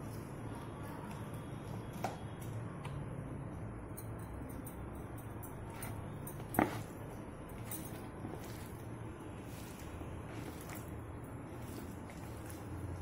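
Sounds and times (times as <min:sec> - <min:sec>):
hand mixing wet food in bowl: 0:05.5 - 0:13.0.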